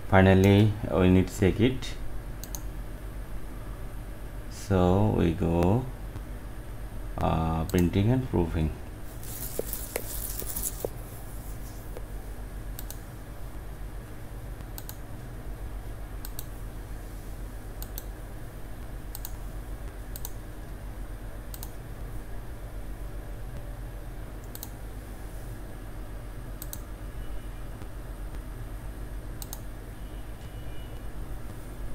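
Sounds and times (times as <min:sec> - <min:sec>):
steady low hum: 0:00.0 - 0:31.9
computer mouse clicks: 0:02.4 - 0:02.7, 0:09.3 - 0:11.0, 0:12.8 - 0:13.0, 0:14.6 - 0:15.0, 0:16.2 - 0:16.5, 0:17.8 - 0:18.1, 0:19.1 - 0:19.4, 0:20.1 - 0:20.4, 0:21.5 - 0:21.8, 0:24.4 - 0:24.8, 0:26.6 - 0:26.9, 0:29.4 - 0:29.7.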